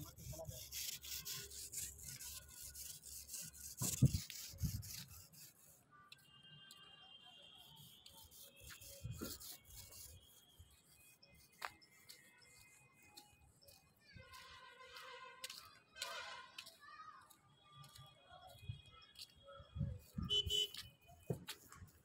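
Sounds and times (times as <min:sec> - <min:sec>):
hand tool scraping cement: 0:00.0 - 0:05.7, 0:08.1 - 0:11.0.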